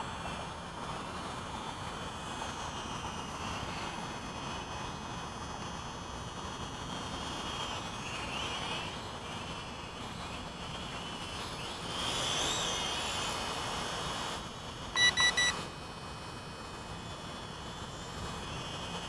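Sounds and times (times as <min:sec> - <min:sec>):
quadcopter motors whining: 0:07.1 - 0:15.7
quick electronic beeps: 0:15.0 - 0:15.6.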